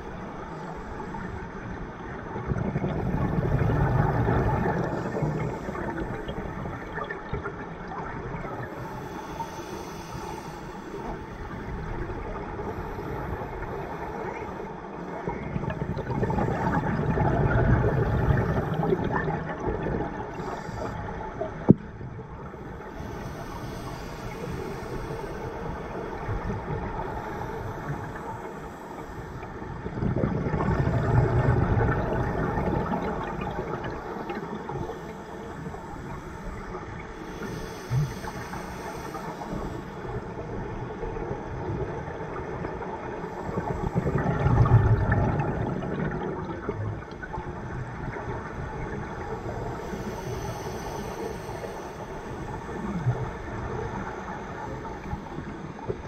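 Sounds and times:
exhaled bubbles rushing: 2.3s - 8.7s, 15.3s - 20.4s, 29.8s - 34.8s, 43.6s - 49.2s
regulator inhalation hiss: 8.6s - 15.2s, 20.3s - 21.2s, 22.6s - 29.7s, 32.9s - 40.5s, 49.0s - 55.4s.

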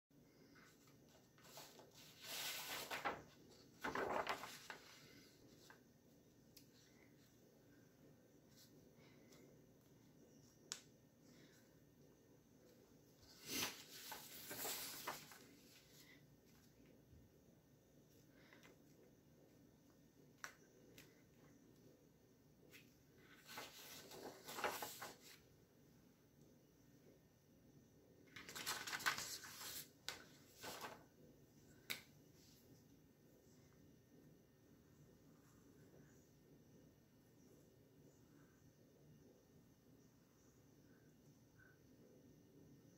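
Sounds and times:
paper sliding and rustling: 0.5s - 5.8s, 13.2s - 16.0s, 23.3s - 25.4s, 28.4s - 31.0s.

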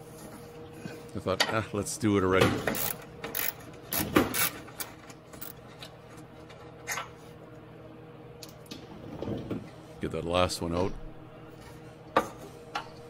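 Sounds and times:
ratchet clicking: 2.7s - 4.6s.

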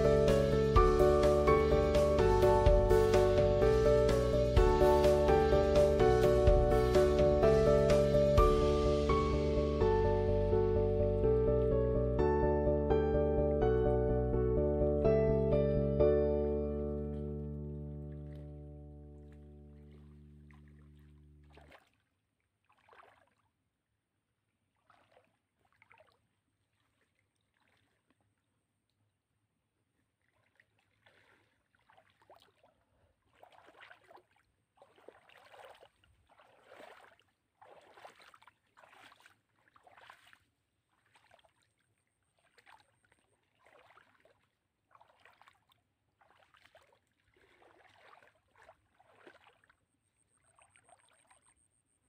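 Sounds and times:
wading through shallow water: 0.0s - 11.9s, 16.8s - 23.8s, 24.4s - 52.0s.

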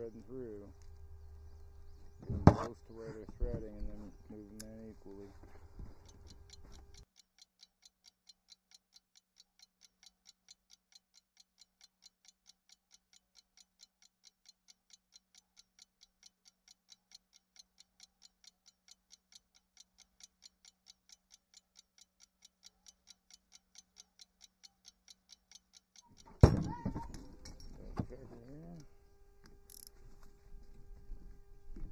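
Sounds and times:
faint steady hum: 0.0s - 7.1s, 17.5s - 31.9s
faint evenly spaced ticking: 0.0s - 26.4s, 27.4s - 29.9s.

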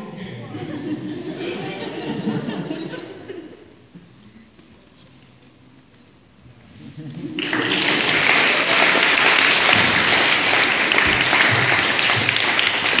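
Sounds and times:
audience applauding: 7.3s - 13.0s.

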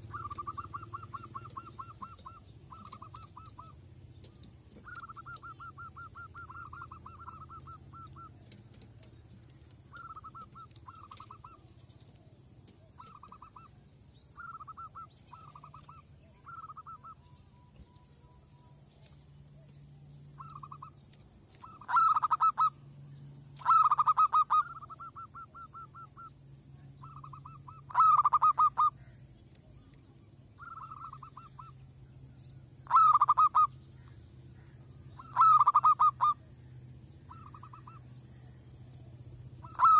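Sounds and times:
dove cooing in staccato bursts: 0.0s - 13.8s, 14.4s - 17.2s, 20.4s - 21.0s, 21.6s - 22.8s, 23.6s - 26.3s, 27.0s - 29.0s, 30.6s - 31.8s, 32.8s - 33.8s, 35.2s - 36.4s, 37.3s - 38.1s, 39.0s - 39.9s.

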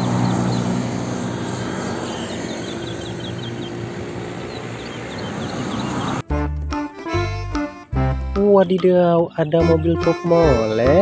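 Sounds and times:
small birds chirping: 0.0s - 6.3s
low engine hum: 0.0s - 6.8s
engine and road noise: 0.0s - 8.8s.

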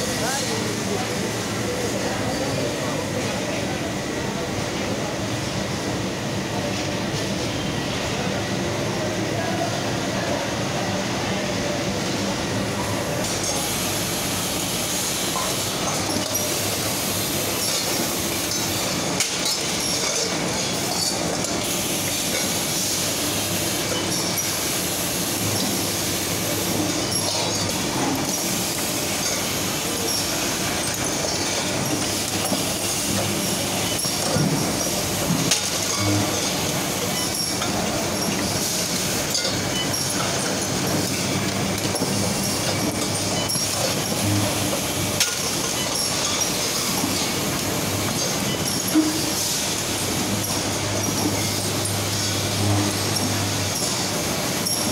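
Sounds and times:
compressor machinery noise: 0.0s - 54.9s.

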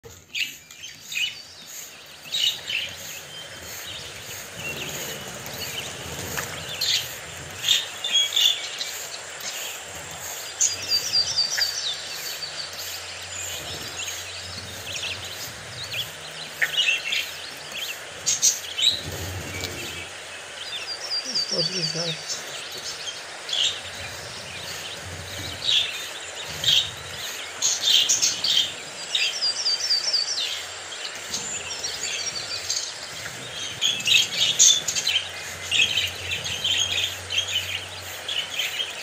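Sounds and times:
budgerigars chirping: 0.3s - 39.0s.

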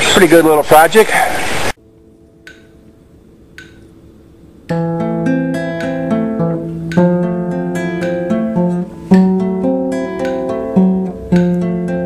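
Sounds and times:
acoustic guitar strumming: 4.7s - 12.0s.

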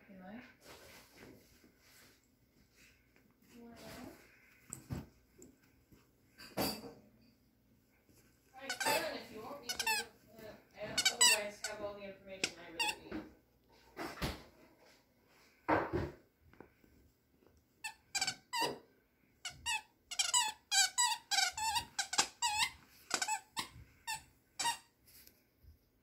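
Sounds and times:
toy squeaker squeaking: 8.6s - 10.1s, 11.0s - 11.4s, 19.5s - 24.9s.

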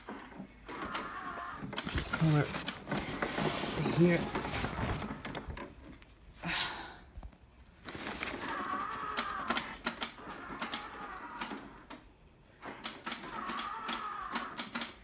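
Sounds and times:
animatronic clicking and crackling: 8.4s - 12.0s, 12.6s - 15.0s.

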